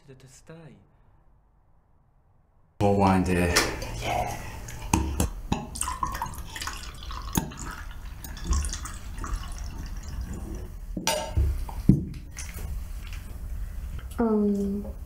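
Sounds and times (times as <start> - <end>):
wine pouring into glass: 3.8 - 10.8
glass clinking and knocking: 11.0 - 11.5.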